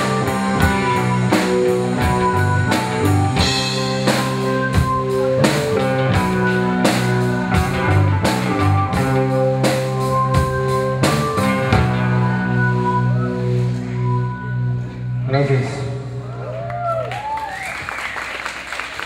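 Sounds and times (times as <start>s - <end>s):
drum kit steady beat: 0.0s - 12.3s
bass guitar: 0.0s - 17.4s
electric guitars: 0.0s - 17.6s.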